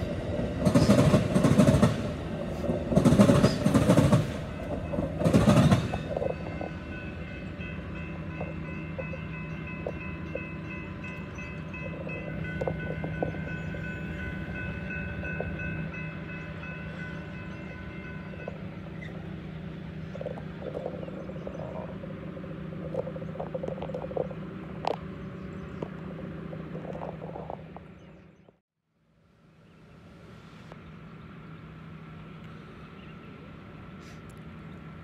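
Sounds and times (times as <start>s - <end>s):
train rumble: 0.0s - 28.6s
crossing warning bell ringing: 3.4s - 26.7s.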